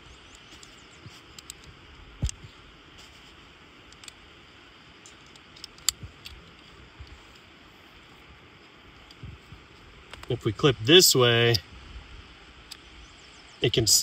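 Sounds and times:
background hiss: 0:00.0 - 0:14.0
metallic carabiner clicks: 0:00.3 - 0:02.4, 0:03.9 - 0:04.2, 0:05.0 - 0:06.6.

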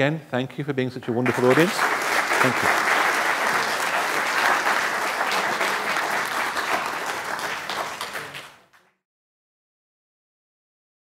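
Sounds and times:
audience applauding: 0:01.2 - 0:09.0.

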